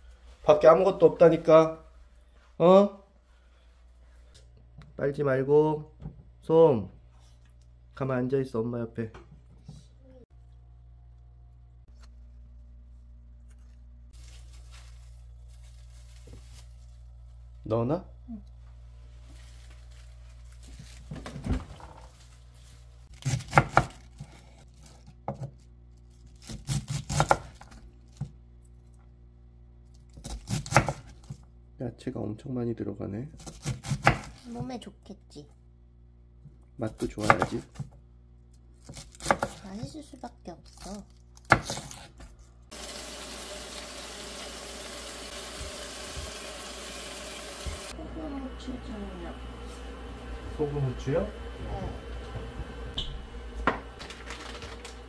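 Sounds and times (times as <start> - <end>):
low steady hum: 5.8 - 23.1, 47.9 - 55.0
knife chopping on cutting board: 23.2 - 24.4, 26.4 - 27.8, 30.1 - 31.2, 33.4 - 34.4, 37.0 - 38.0, 38.8 - 39.6
vegetables sizzling in a frying pan: 42.7 - 48.0.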